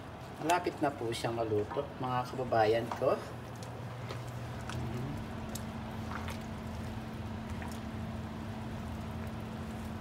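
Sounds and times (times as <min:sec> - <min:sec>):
steady hum: 0:00.0 - 0:10.0
soup simmering in a pot: 0:03.3 - 0:10.0
bubbles popping: 0:04.4 - 0:10.0.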